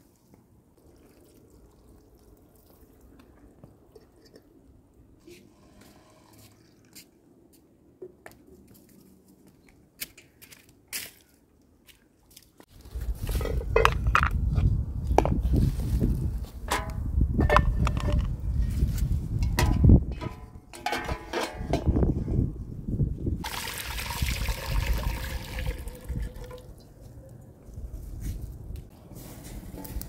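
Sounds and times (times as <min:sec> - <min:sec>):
metal cooking pots clattering: 0:19.5 - 0:22.0.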